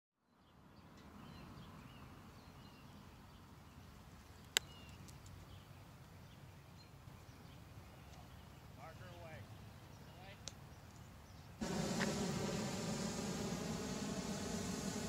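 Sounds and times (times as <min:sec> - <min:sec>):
small birds chirping: 0:00.3 - 0:15.0
low steady rumble: 0:11.6 - 0:15.0.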